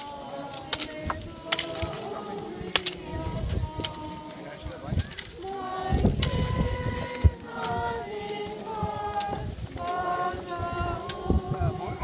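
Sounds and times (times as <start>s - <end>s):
group singing long held notes: 0.0s - 12.0s.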